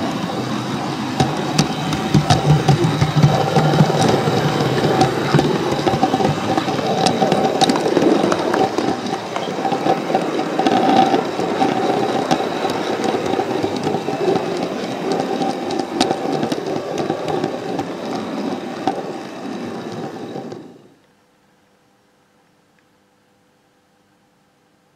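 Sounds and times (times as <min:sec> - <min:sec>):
electric motor whine: 0:00.0 - 0:21.0
model train wheels rumbling: 0:00.0 - 0:21.0
clicks at rail joints: 0:01.1 - 0:20.8.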